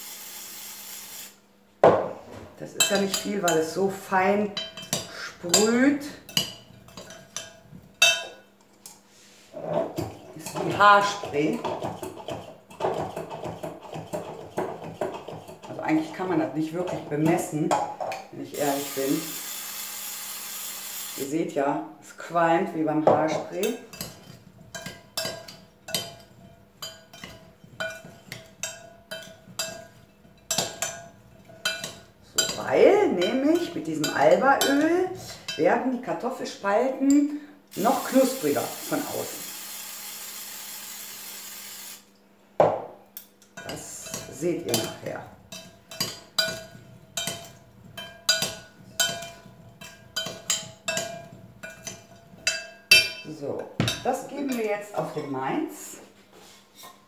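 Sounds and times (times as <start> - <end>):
metal spoon clinking glass bowl: 4.6 - 8.4, 23.6 - 35.6, 43.5 - 54.1
spoon clinking against glass bowl: 6.3 - 8.4, 43.5 - 54.0.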